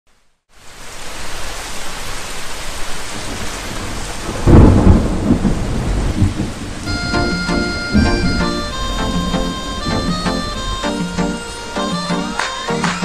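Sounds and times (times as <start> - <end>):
rain: 0.1 - 12.8
thunder rumble: 3.3 - 10.8.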